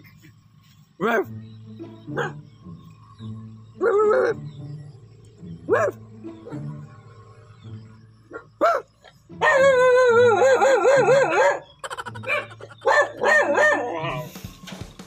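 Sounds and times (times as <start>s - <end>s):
dog barking and howling: 2.1s - 2.4s, 3.8s - 4.5s, 5.6s - 6.9s, 8.3s - 14.3s.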